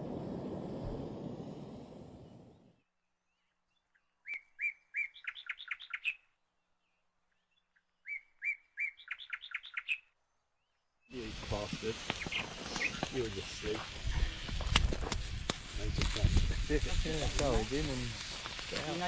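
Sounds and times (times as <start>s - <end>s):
songbird singing: 2.1s - 11.3s, 12.1s - 13.4s
gas stove burner hissing: 11.2s - 19.0s.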